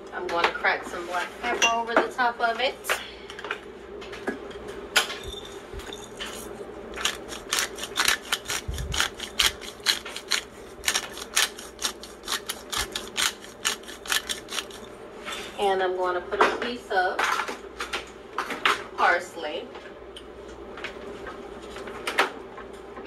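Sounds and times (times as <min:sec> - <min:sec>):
pepper grinder clicking: 0:06.9 - 0:14.9.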